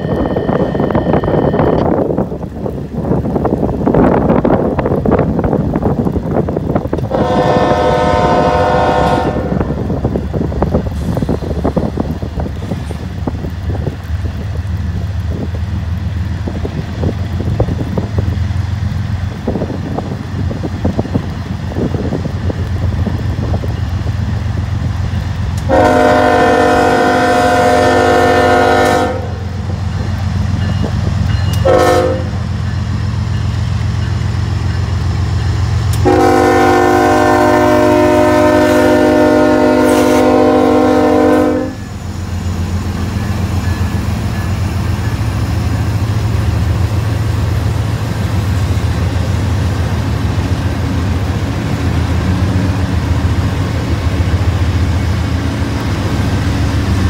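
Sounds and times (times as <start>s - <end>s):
diesel locomotives rumbling: 0.0s - 57.0s
train air horn blasts: 7.1s - 9.8s, 25.6s - 29.6s, 31.5s - 32.4s, 36.0s - 42.0s.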